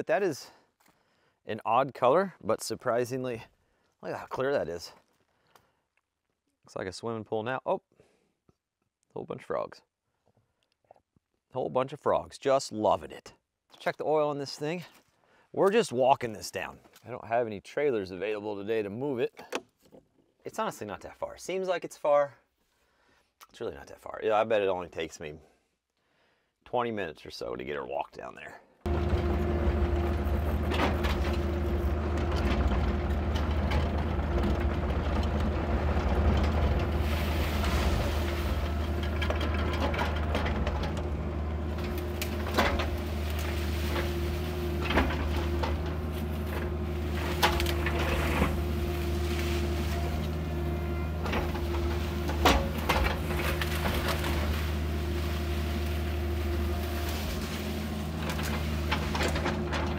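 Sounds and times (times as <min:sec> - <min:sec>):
machine knocks and clunks: 0:28.9 - 0:50.4, 0:51.1 - 0:57.5, 0:58.1 - 0:59.9
excavator diesel engine running: 0:28.9 - 0:59.9.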